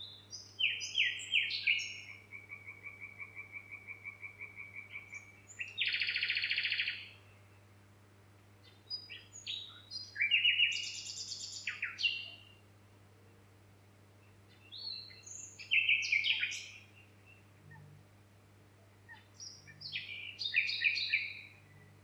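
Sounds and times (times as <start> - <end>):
songbird singing: 0.0 - 22.0
faint low hum: 7.1 - 22.0.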